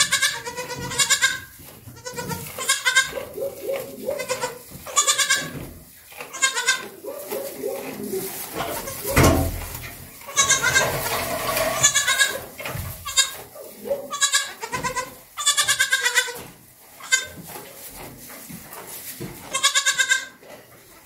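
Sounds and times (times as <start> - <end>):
goat kids bleating: 0.0 - 9.6, 10.2 - 17.5, 19.4 - 20.4.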